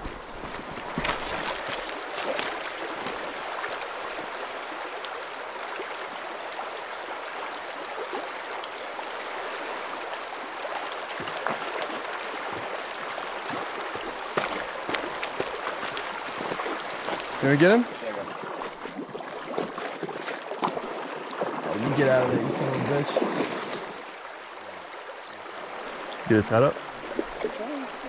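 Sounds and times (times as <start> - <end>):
river flowing over rocks: 0.2 - 18.7.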